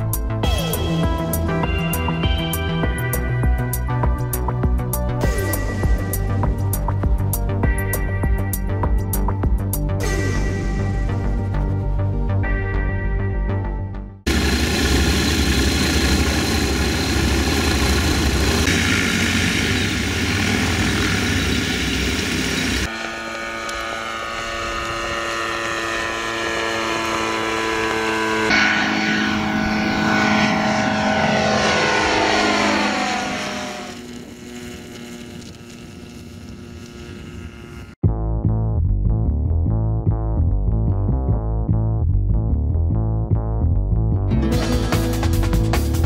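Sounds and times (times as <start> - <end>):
propeller aircraft engine: 0.0 - 11.8, 14.2 - 38.0.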